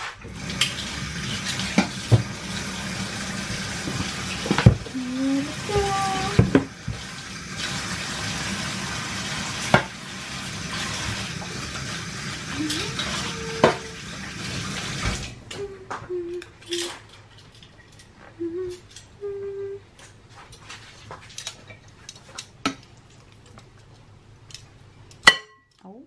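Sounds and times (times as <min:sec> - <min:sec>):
water running from a tap: 0:00.2 - 0:15.4
dishes and utensils clinking: 0:16.6 - 0:19.1.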